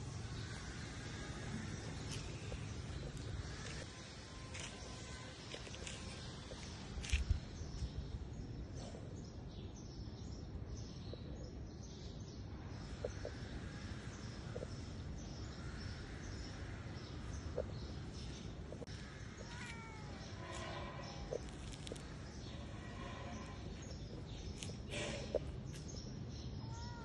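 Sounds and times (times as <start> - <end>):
low outdoor background noise: 0.0 - 27.0.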